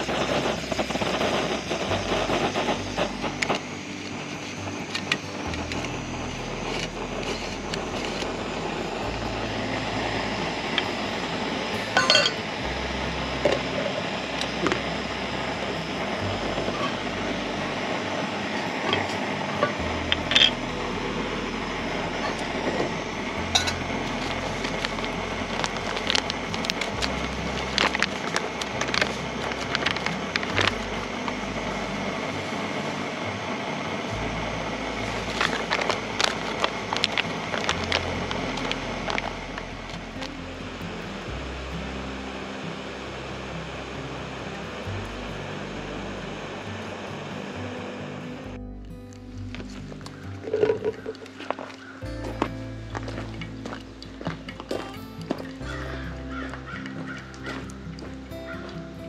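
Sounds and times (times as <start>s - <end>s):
steady hiss: 0.0s - 59.0s
dishes and utensils clinking: 12.0s - 12.4s, 23.5s - 23.9s.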